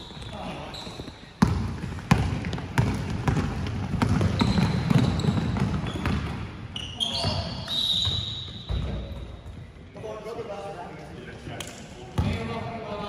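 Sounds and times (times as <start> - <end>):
basketball bouncing on gym floor: 1.4 - 9.4
voices in a hall: 6.6 - 13.0.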